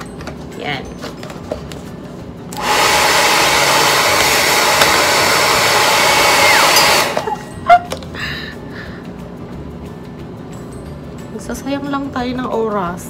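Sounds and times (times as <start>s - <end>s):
hair dryer blowing into bottle: 2.6s - 7.5s.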